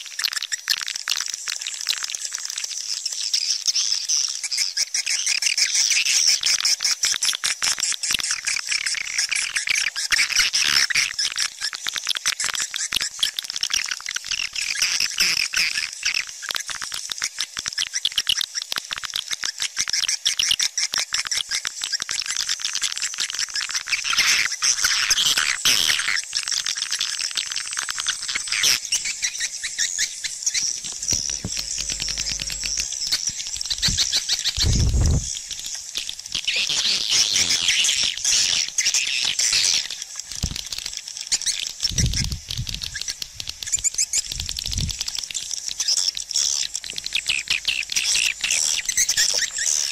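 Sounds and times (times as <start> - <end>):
swiftlets chirping and twittering: 27.6 - 40.0, 41.2 - 49.9.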